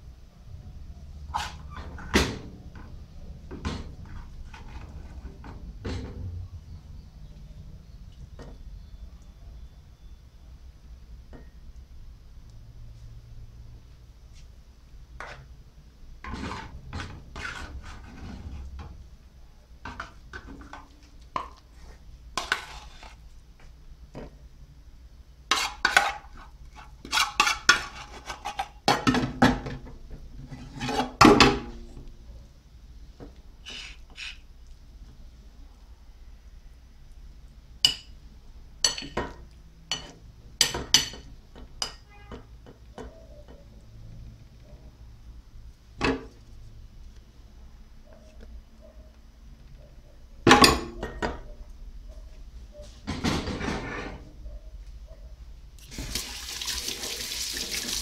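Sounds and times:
wooden spoon scraping metal pan: 4.0s - 6.0s, 15.2s - 15.5s, 16.2s - 18.9s, 21.4s - 23.3s, 25.5s - 29.1s, 30.4s - 31.3s, 33.6s - 34.4s.

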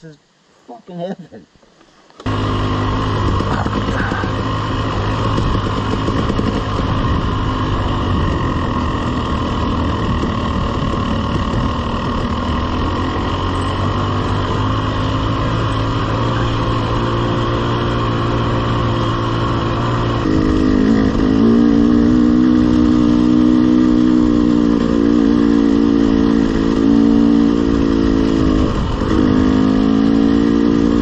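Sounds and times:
dirt bike engine running: 2.2s - 31.0s.

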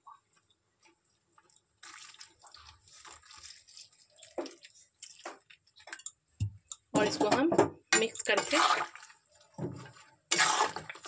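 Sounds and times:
water dripping: 0.0s - 7.4s
water pouring into a metal pan: 1.4s - 6.2s, 8.2s - 11.0s.

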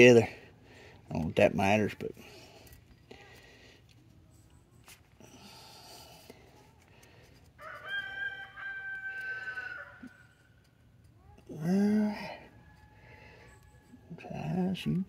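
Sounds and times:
rooster crowing: 7.6s - 10.4s, 12.4s - 14.0s.

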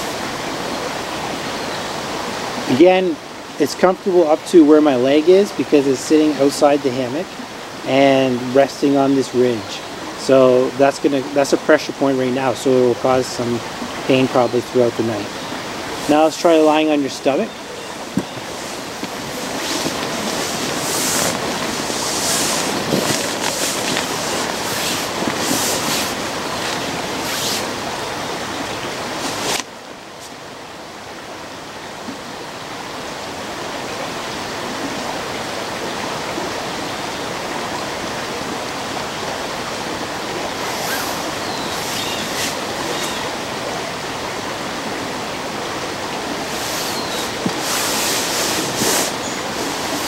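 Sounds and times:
rushing outdoor noise: 0.0s - 50.0s
hammock fabric rustling: 17.9s - 30.4s, 40.3s - 43.4s, 46.2s - 50.0s.

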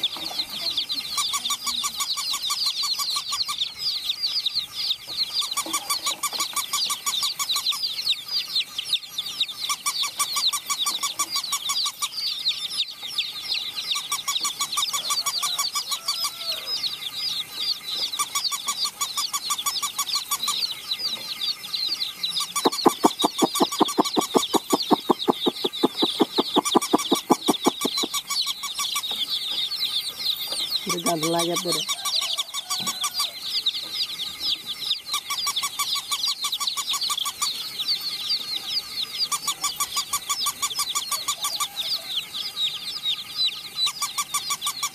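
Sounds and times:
baby chicks peeping: 0.0s - 44.9s
fast rhythmic clicking: 22.6s - 28.3s.

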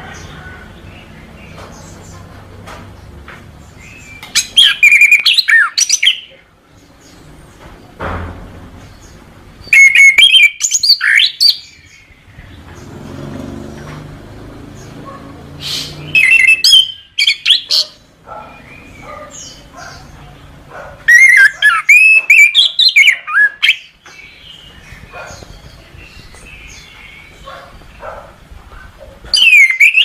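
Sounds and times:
thrush singing whistled trills: 3.8s - 6.3s, 9.6s - 12.2s, 15.6s - 20.0s, 21.1s - 27.5s, 29.3s - 30.0s.

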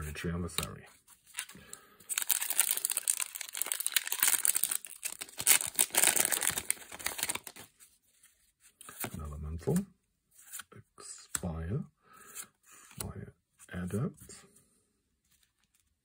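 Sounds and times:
foil wrapper crinkling: 2.1s - 7.7s.

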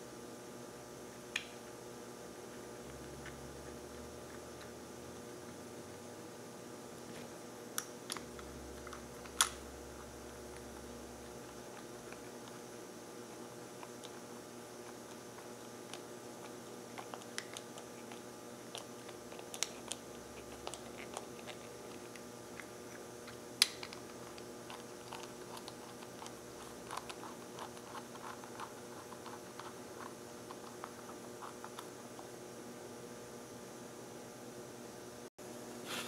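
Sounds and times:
electrical hum: 0.0s - 36.0s.

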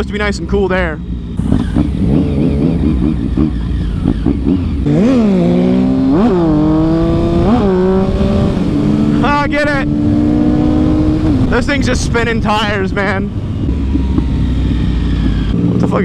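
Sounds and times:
motorcycle engine accelerating: 0.0s - 16.0s
wind rush: 4.2s - 15.8s.

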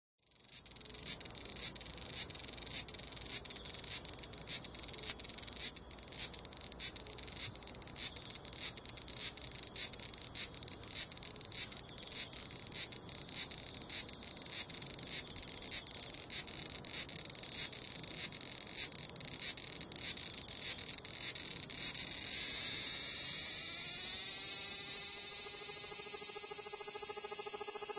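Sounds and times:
cicada grating pulses: 0.3s - 27.9s
cicada loud high buzz: 0.3s - 27.9s
steady high hiss: 1.2s - 27.9s.

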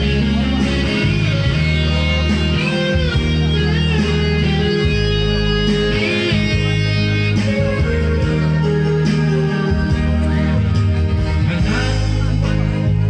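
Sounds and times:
guitar-led music: 0.0s - 13.0s
man singing into a microphone: 11.2s - 13.0s.

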